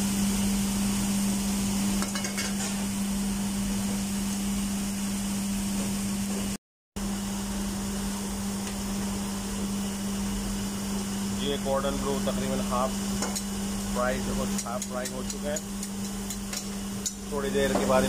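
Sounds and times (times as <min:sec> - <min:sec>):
oil sizzling in deep fryer: 0:00.0 - 0:18.0
steady low hum: 0:07.0 - 0:18.0.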